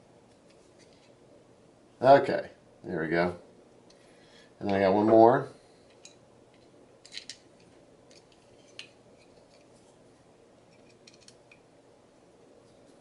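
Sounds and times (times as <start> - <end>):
screwdriver clicks and scrapes: 10.7 - 11.6.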